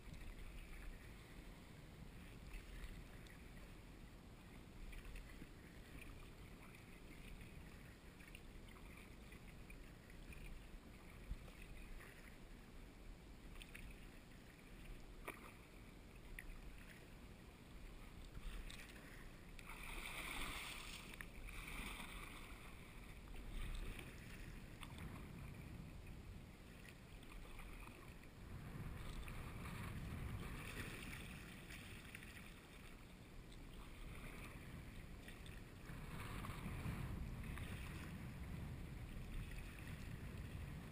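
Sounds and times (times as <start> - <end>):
water lapping at hull: 0.0 - 40.9
paddle splashing in water: 13.5 - 17.1, 17.9 - 25.6, 26.7 - 38.4.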